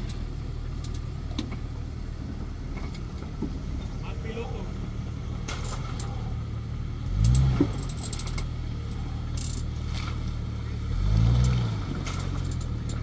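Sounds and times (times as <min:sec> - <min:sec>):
engine running low: 0:00.0 - 0:13.0
light clicking and rattling: 0:11.4 - 0:13.0.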